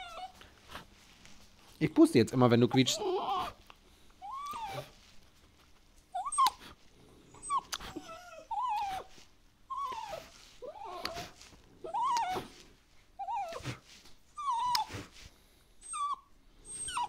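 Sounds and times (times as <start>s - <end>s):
dog whining: 0.0s - 0.5s, 2.7s - 3.6s, 4.2s - 5.0s, 6.1s - 12.6s, 13.2s - 15.2s, 15.8s - 17.0s.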